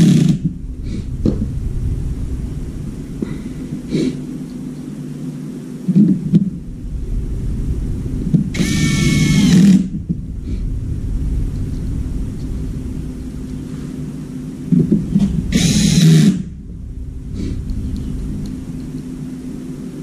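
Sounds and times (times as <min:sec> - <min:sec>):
steady low rumble: 0:00.0 - 0:20.0
cordless drill spinning: 0:08.5 - 0:09.9, 0:15.5 - 0:16.4.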